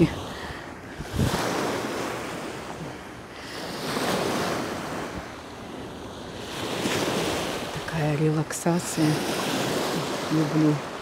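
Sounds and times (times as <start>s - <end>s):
wind on microphone: 0.0s - 8.2s
waves washing onto pebble beach: 0.0s - 11.0s.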